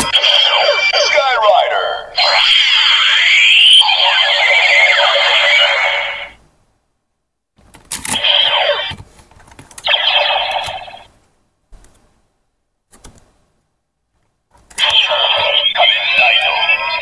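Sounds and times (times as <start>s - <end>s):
toy belt electronic sound effects: 0.0s - 6.4s, 8.2s - 9.0s, 9.8s - 11.1s, 14.8s - 17.0s.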